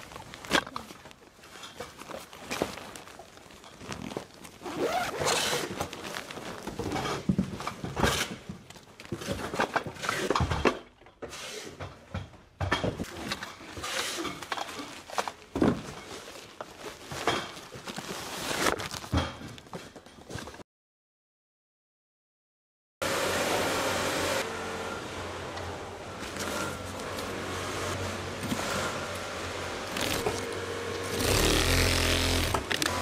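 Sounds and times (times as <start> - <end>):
fabric and packaging rustling: 0.0 - 9.8, 13.0 - 20.6, 29.8 - 33.0.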